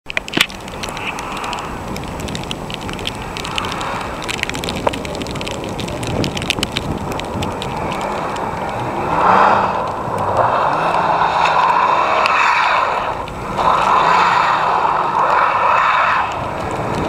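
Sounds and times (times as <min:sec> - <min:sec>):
wind buffeting microphone: 0:00.2 - 0:17.0
distant car engine revving: 0:08.5 - 0:17.0.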